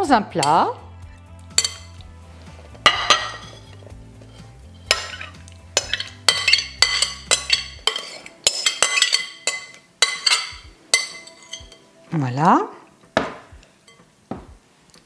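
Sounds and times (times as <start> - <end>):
glass bowl and utensil clinking: 1.5 - 2.0, 2.8 - 3.8, 4.8 - 11.8.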